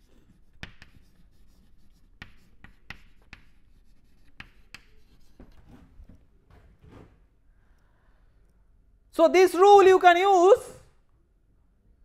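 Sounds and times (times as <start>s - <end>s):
chalk tapping on chalkboard: 0.0s - 5.9s
chalk scratching on chalkboard: 0.0s - 6.0s.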